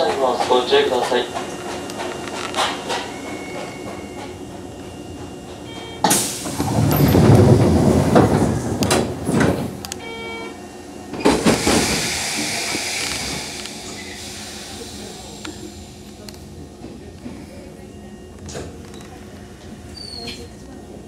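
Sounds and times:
train doors air hiss: 0:06.0 - 0:09.9, 0:11.1 - 0:17.7
brief tone: 0:10.0 - 0:10.6.

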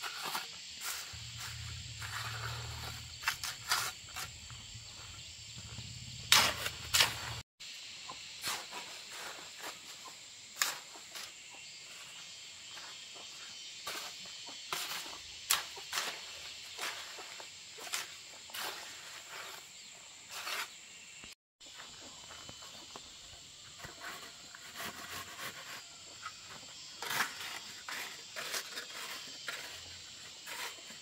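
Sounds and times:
sharp knocks and scrapes: 0:00.0 - 0:07.4, 0:08.1 - 0:23.0, 0:23.6 - 0:31.0
high-pitched insect drone: 0:00.0 - 0:08.4.

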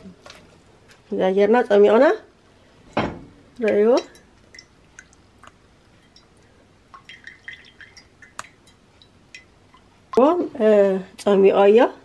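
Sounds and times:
liquid dripping into pot: 0:03.6 - 0:09.9.

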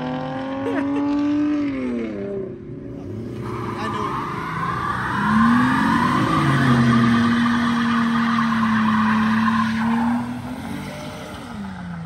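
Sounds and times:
car engine revving: 0:00.0 - 0:12.0
tyres squealing: 0:03.3 - 0:11.6.

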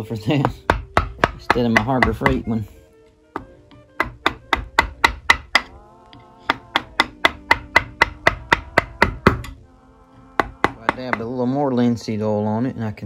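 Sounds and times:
mallet tapping chisel into wood: 0:00.3 - 0:02.6, 0:03.3 - 0:09.6, 0:10.4 - 0:11.4.

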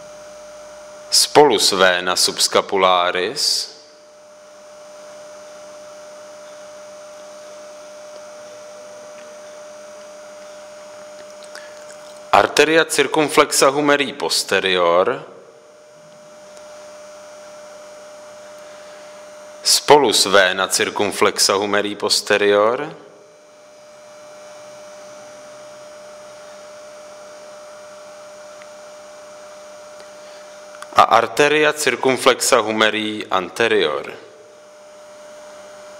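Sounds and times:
electrical whine: 0:00.0 - 0:35.9.

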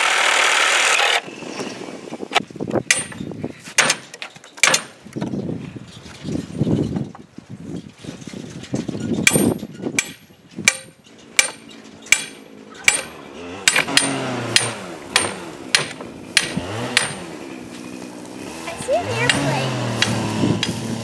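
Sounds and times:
hammer striking wood: 0:02.9 - 0:05.0, 0:09.2 - 0:17.3, 0:19.3 - 0:20.8.

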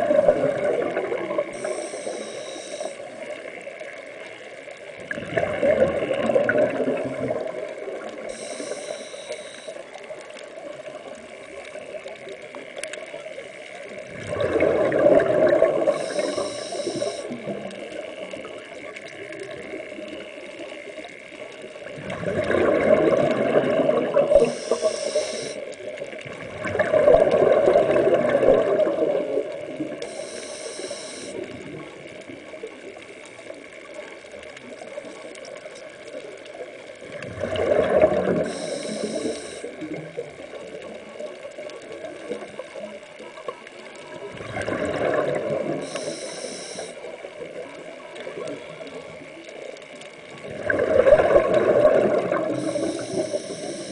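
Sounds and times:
exhaled air bubbling underwater: 0:00.0 - 0:53.9
scuba regulator hiss: 0:01.6 - 0:03.1, 0:08.3 - 0:09.8, 0:15.9 - 0:17.4, 0:24.4 - 0:25.6, 0:30.0 - 0:31.4, 0:38.4 - 0:39.7, 0:45.8 - 0:47.1, 0:52.5 - 0:53.9.

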